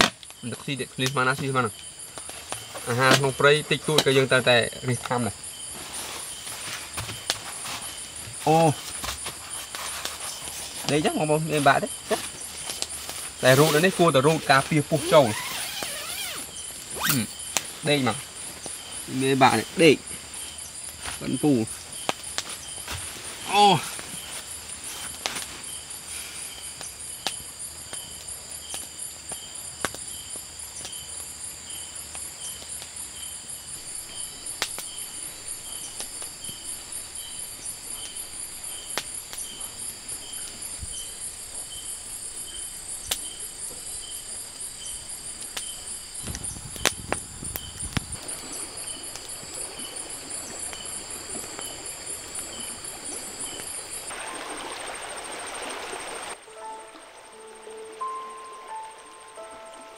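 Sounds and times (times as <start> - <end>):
high-pitched insect drones: 0.0 - 59.9
insect chirping: 0.0 - 59.9.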